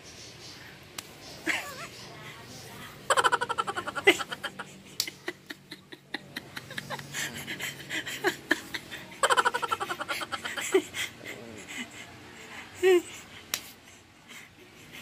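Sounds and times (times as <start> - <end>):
man laughing: 3.1 - 13.3.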